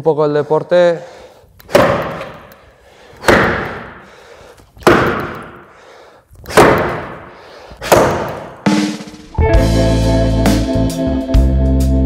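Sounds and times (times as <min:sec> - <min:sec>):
axe chopping log: 0:01.6 - 0:02.6, 0:03.2 - 0:04.1, 0:04.8 - 0:05.7, 0:06.4 - 0:08.6.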